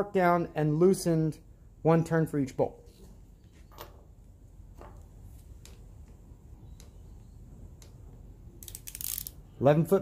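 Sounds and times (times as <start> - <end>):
torque wrench ratchet clicks: 8.6 - 9.4.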